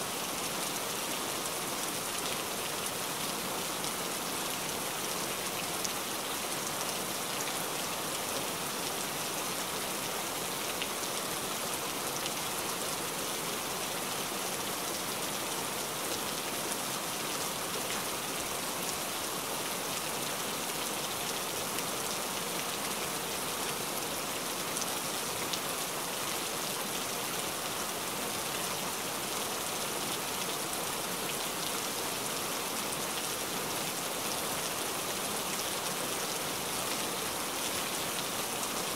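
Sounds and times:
rain falling: 0.0s - 38.9s.

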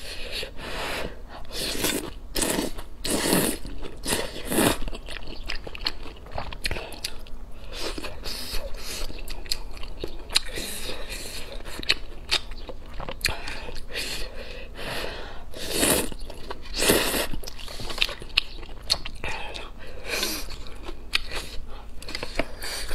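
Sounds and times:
noodles slurped: 1.4s - 4.9s
chewing mouth sounds: 1.4s - 14.0s, 15.8s - 22.9s.

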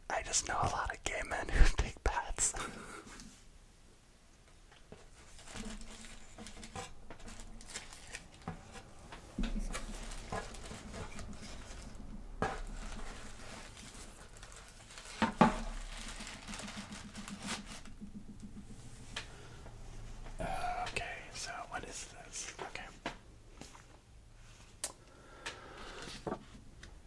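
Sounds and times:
hands rummaging through packages: 5.0s - 19.2s.

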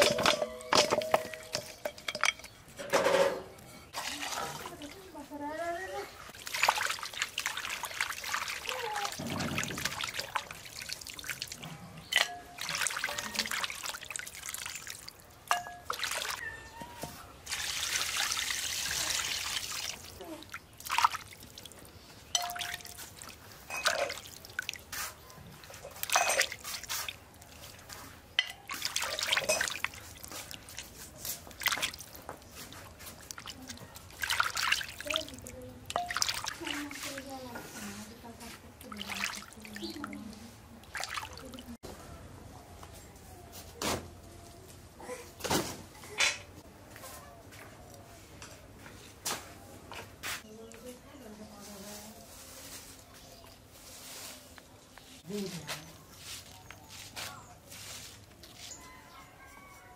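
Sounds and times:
water trickling and splashing: 3.9s - 41.8s
water pouring: 6.3s - 16.5s, 17.4s - 37.5s, 38.8s - 41.8s.

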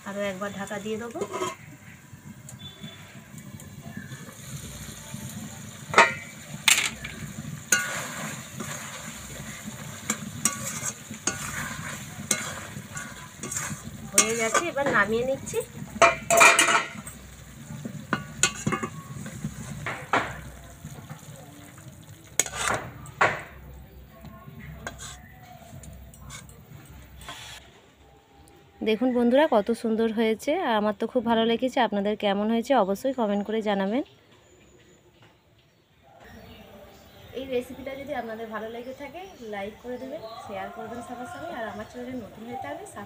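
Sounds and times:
spatula scraping metal pan: 1.0s - 2.0s, 5.9s - 20.1s, 22.4s - 23.0s, 24.8s - 25.4s, 26.1s - 26.6s, 27.2s - 27.6s
gravy bubbling: 1.2s - 27.2s.

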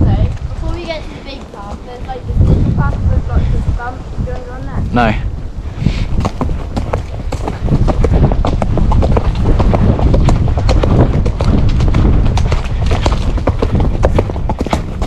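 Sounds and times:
horse hoofbeats on dirt track: 0.0s - 3.0s, 6.1s - 15.0s
low rumble: 2.1s - 5.7s.

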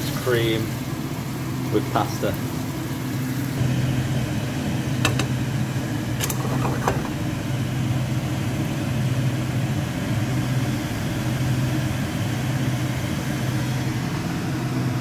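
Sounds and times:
appliance motor humming: 0.0s - 15.0s.

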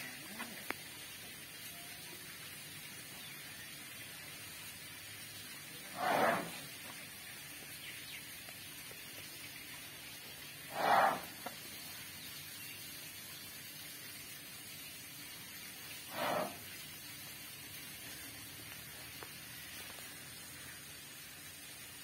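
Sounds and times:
elephant blowing air through trunk: 5.9s - 6.6s, 10.7s - 11.3s, 16.1s - 16.6s.

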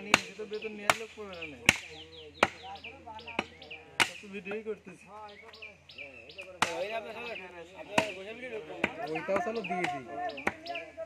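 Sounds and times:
cleaver chopping on wooden block: 0.0s - 2.6s.

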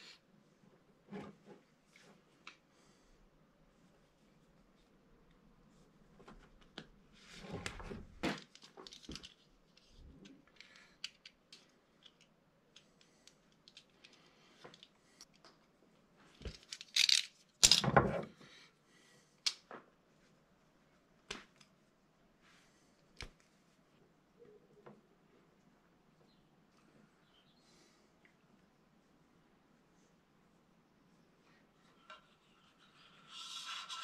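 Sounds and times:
tools and cable handling: 7.5s - 15.7s, 16.3s - 18.2s.

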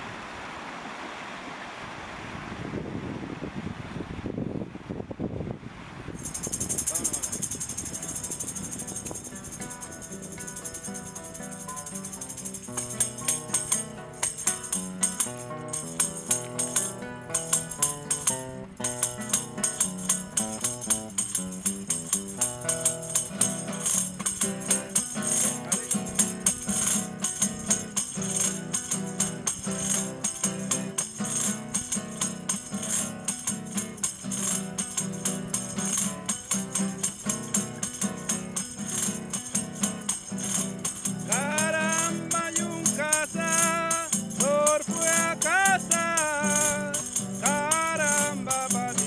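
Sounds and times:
acoustic guitar strumming: 6.2s - 49.0s
wooden rattle shaken: 6.2s - 49.0s
man singing: 25.2s - 26.9s, 41.3s - 49.0s.

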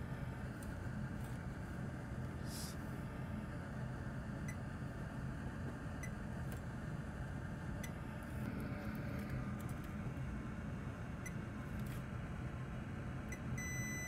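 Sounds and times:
low hum of workbench equipment: 0.0s - 14.0s.

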